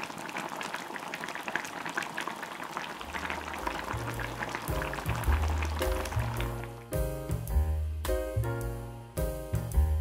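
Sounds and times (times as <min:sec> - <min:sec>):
stew bubbling in a pot: 0:00.0 - 0:06.9
background music with bass: 0:03.6 - 0:10.0.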